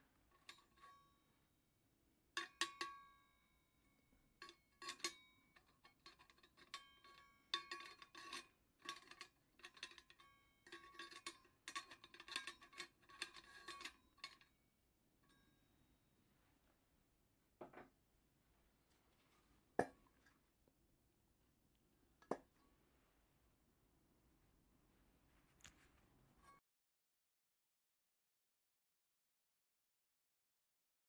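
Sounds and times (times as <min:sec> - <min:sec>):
metal clinks and knocks: 0:04.4 - 0:14.6.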